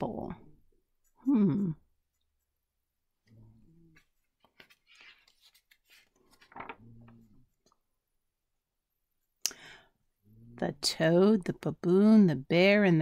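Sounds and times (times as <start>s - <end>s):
paper page rustling: 4.0s - 7.6s.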